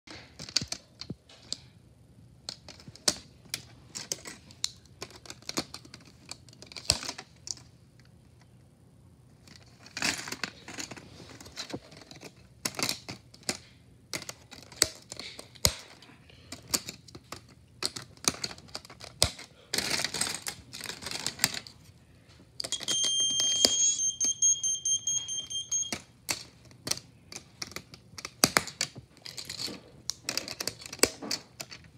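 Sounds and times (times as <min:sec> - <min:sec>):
plastic parts snapping: 0:02.5 - 0:07.7, 0:09.4 - 0:21.7, 0:25.9 - 0:31.9
electronic horn tone: 0:22.7 - 0:26.0.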